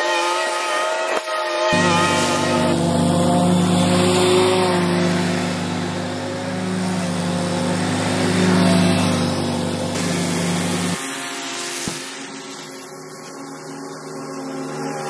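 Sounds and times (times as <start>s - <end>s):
mower engine humming: 1.7s - 15.0s.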